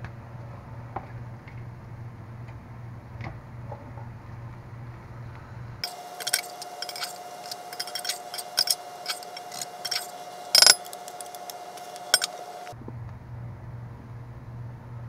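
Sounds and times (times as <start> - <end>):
metal spatula scraping skillet: 5.8 - 12.8.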